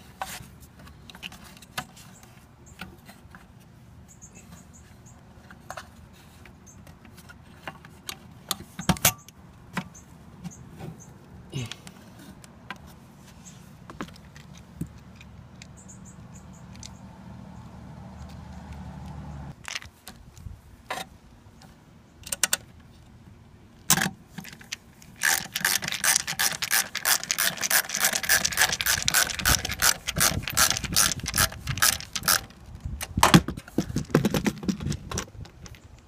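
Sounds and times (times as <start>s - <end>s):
ratcheting screwdriver clicking: 25.2s - 32.5s.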